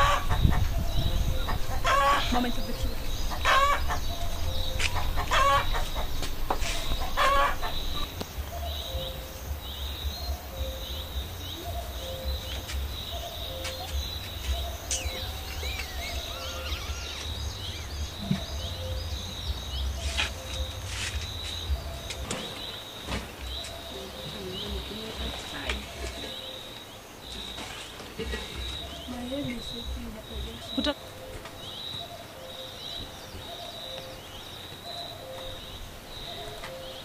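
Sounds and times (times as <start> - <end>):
wind rumble on microphone: 0.0 - 26.3
chickens calling: 0.0 - 37.0
small birds chirping: 0.0 - 37.0.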